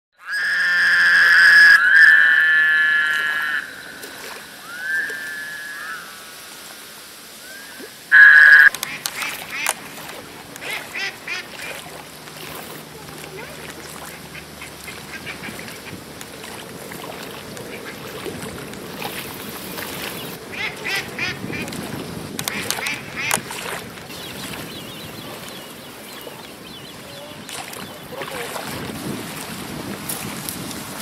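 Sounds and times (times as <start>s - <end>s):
pond background noise: 0.1s - 31.0s
ducks quacking: 0.2s - 6.1s, 8.1s - 12.1s, 13.1s - 16.6s, 17.6s - 18.4s, 20.5s - 21.8s, 22.4s - 23.5s.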